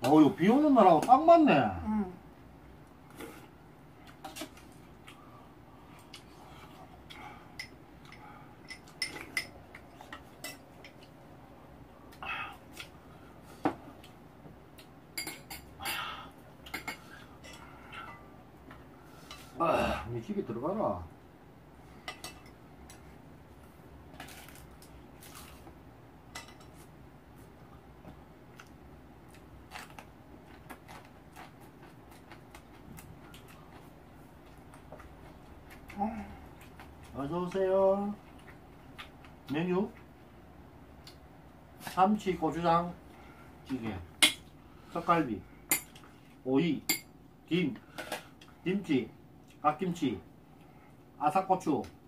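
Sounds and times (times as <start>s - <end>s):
soft chewing: 2.9s - 15.0s, 28.4s - 40.2s.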